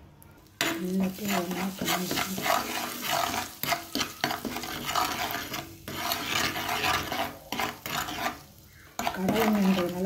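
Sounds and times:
metal spoon scraping a frying pan: 0:00.6 - 0:10.0.

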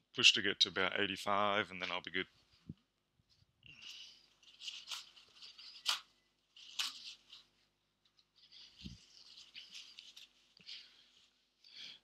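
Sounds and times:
objects rustling and scraping: 0:02.4 - 0:11.6.

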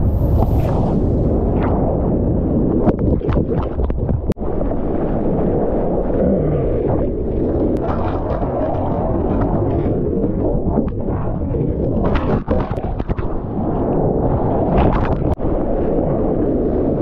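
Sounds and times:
seawater rushing and splashing: 0:00.0 - 0:02.0
wind buffeting microphone: 0:00.0 - 0:17.0.

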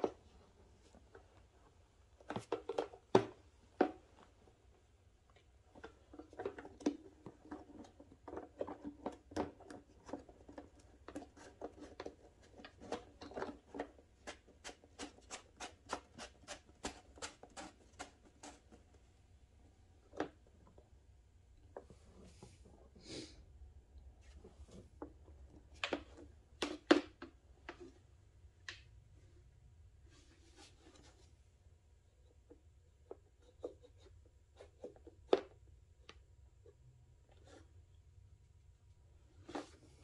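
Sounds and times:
plastic handling clicks and rustles: 0:05.2 - 0:16.0.

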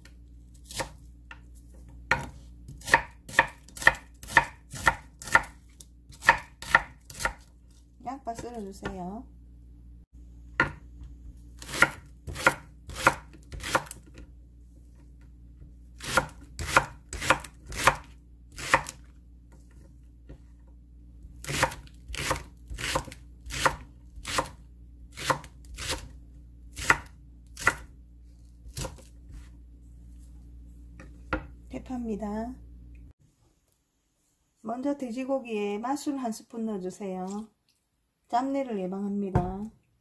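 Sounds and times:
knife chopping on wooden board: 0:00.6 - 0:07.5, 0:10.6 - 0:11.0, 0:11.6 - 0:14.2, 0:16.0 - 0:19.0, 0:21.4 - 0:24.6, 0:25.2 - 0:26.1, 0:26.8 - 0:27.9, 0:28.7 - 0:29.5.

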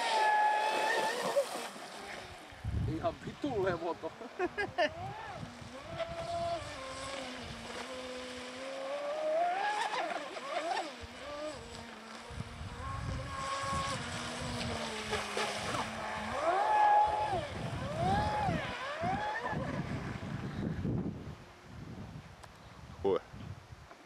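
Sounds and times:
electric motor high whine: 0:00.0 - 0:02.7, 0:04.9 - 0:20.9
spray and wind rushing: 0:00.0 - 0:09.0, 0:17.0 - 0:23.9.

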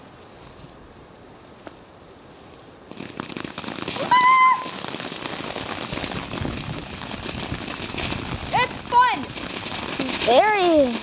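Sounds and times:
firework crackling hiss: 0:00.0 - 0:11.0
high-pitched voice crying out: 0:04.0 - 0:04.8.

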